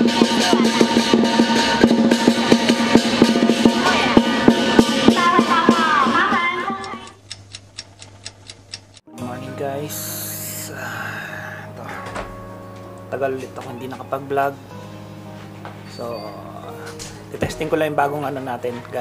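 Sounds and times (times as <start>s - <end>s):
drum beat with melodic music: 0.0s - 10.6s, 12.0s - 19.0s
faint regular ticks: 6.8s - 9.0s.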